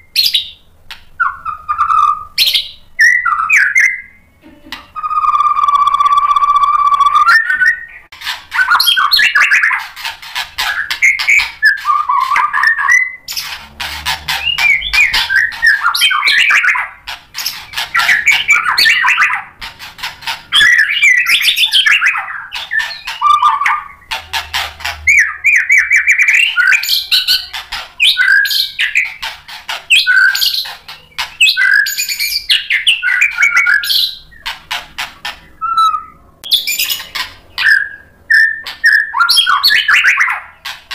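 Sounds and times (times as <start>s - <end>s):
bird singing fast varied song: 0.0s - 4.3s, 5.0s - 34.5s, 35.3s - 40.9s.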